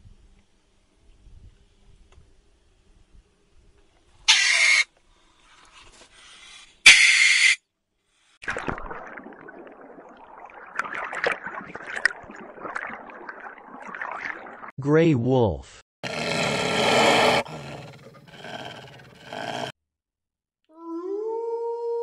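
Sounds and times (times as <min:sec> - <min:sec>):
rough watery noise: 0:08.4 - 0:14.8.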